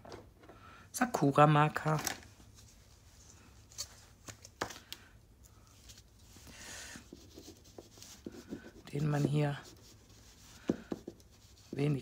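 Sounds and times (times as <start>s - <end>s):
marker brushing on paper: 7.0s - 12.0s.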